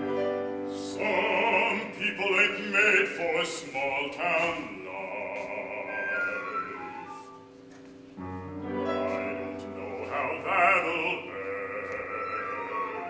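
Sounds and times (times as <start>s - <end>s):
opera singer with vibrato: 0.7s - 7.4s, 9.1s - 13.0s.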